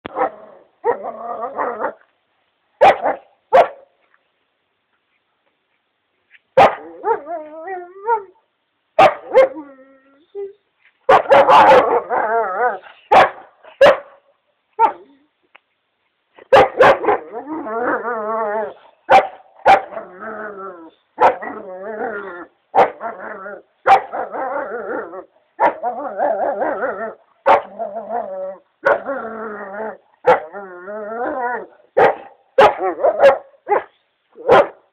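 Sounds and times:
dog barking: 2.8s - 3.9s, 6.6s - 7.2s, 9.0s - 9.6s, 11.1s - 12.2s, 13.1s - 14.2s, 16.5s - 17.2s, 19.1s - 20.0s, 23.9s - 24.1s, 27.4s - 27.7s, 30.2s - 30.5s, 32.0s - 34.8s.

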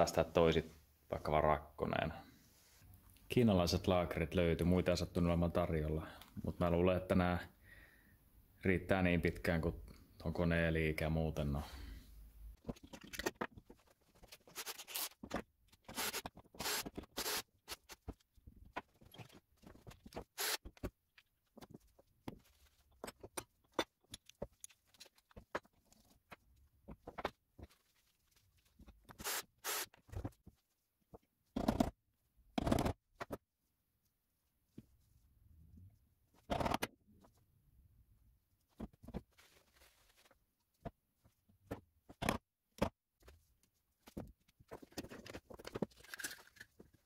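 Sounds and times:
tools clicking and scraping: 44.9s - 46.9s.

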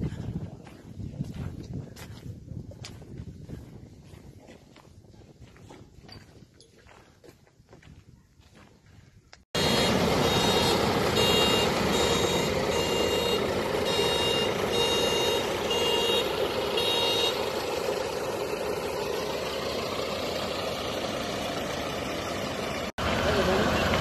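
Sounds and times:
high beeps: 9.6s - 17.4s
tractor engines running: 9.6s - 24.0s.

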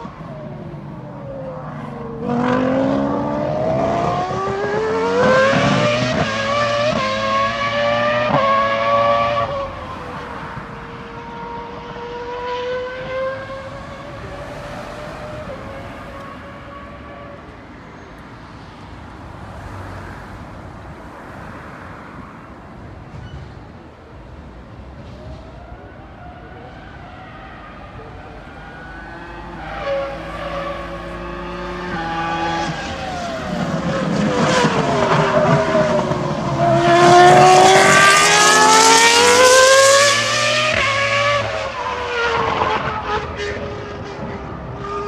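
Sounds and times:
race car engine accelerating: 0.0s - 17.2s, 26.2s - 45.0s.

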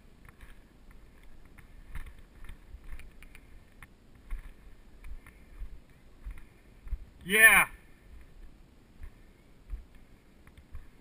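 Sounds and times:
bike tyres rolling on dirt: 0.0s - 7.2s.

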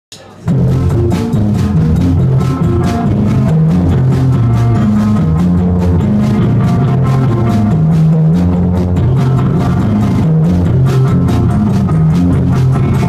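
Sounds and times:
drum kit beat: 0.1s - 13.0s
electric guitar riff: 0.3s - 13.0s.

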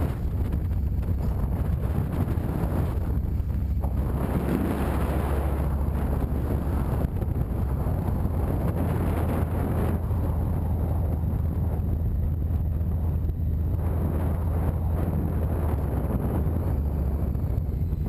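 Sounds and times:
motorcycle engine rumble: 0.0s - 18.0s
road noise: 0.0s - 18.0s
wind rushing over microphone: 0.0s - 18.0s.

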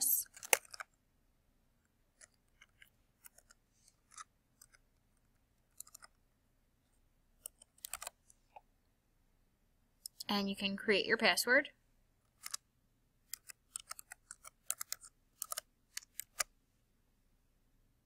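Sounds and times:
keyboard typing clicks: 5.7s - 6.2s, 7.4s - 8.2s, 13.3s - 16.5s.

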